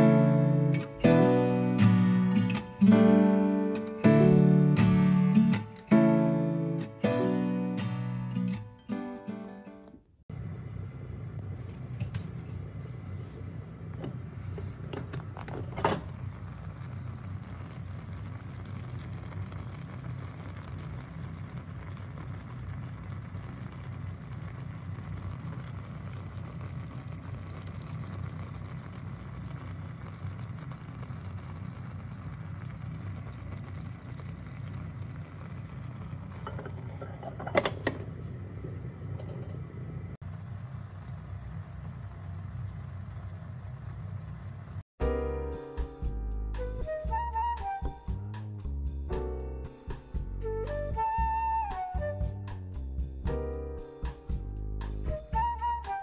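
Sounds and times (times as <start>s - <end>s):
kitchen hum: 9.9s - 44.9s
pot clinking: 11.6s - 12.8s, 35.5s - 38.2s.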